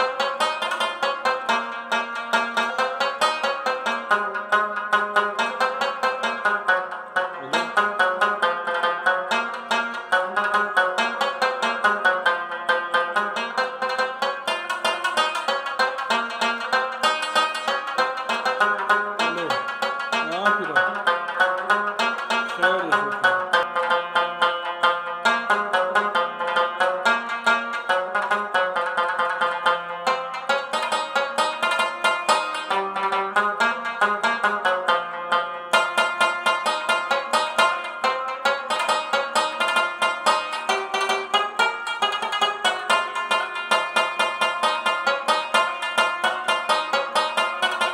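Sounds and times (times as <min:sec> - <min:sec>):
fast plucked-string music: 0:00.0 - 0:47.9.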